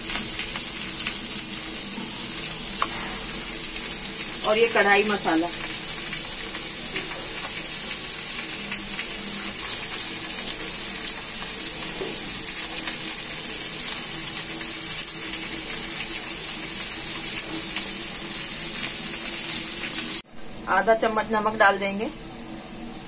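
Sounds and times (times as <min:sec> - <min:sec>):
food sizzling in a pan: 0:00.0 - 0:23.0.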